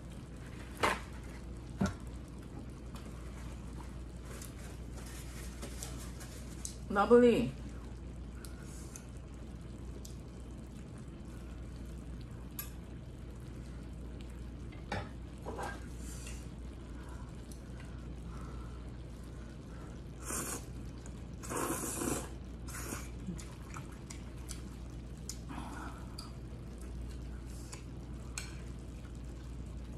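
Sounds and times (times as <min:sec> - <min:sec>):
soft eating noises: 0:00.0 - 0:29.9
steady low hum: 0:00.0 - 0:29.9
scrapes or slurps: 0:20.2 - 0:20.7, 0:21.4 - 0:24.6.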